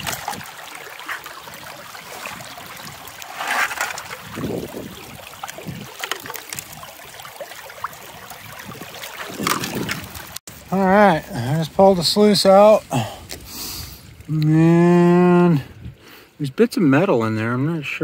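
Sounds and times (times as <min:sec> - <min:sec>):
river water rushing and splashing: 0:00.0 - 0:10.7.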